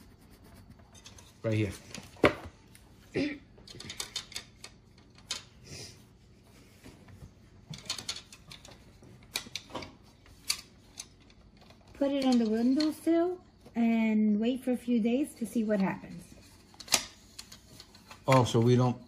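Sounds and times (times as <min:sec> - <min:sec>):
plastic pieces clicking and rattling: 0:03.7 - 0:05.5.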